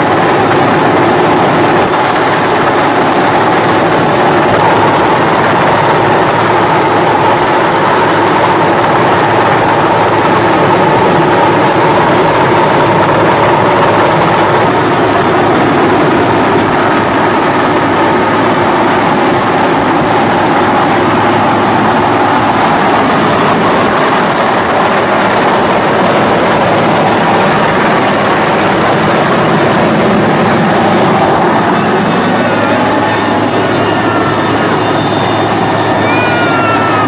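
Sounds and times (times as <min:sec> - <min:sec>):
helicopter engine and rotor noise: 0:00.0 - 0:37.0.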